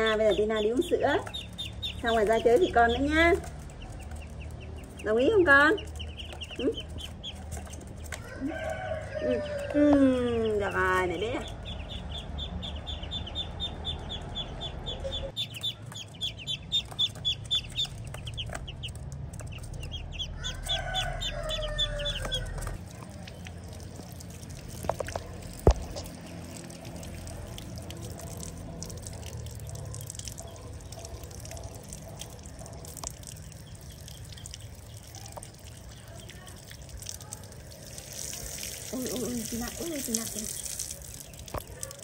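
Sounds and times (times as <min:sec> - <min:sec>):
tap water running onto concrete: 0:00.0 - 0:13.1, 0:15.3 - 0:42.0
poultry chirping: 0:00.0 - 0:23.8, 0:29.4 - 0:36.5.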